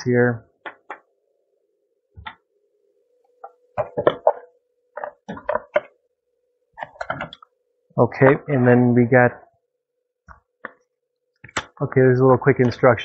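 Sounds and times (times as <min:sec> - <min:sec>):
plastic clicks and knocks: 0:05.0 - 0:05.9, 0:06.8 - 0:07.5.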